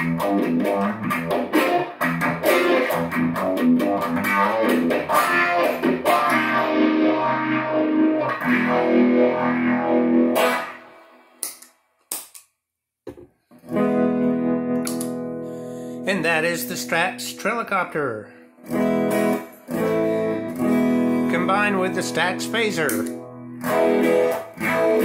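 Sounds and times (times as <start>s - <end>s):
electric guitar with effects: 0.0s - 11.7s, 13.5s - 25.0s
pedal footswitch clicks: 14.8s - 15.2s.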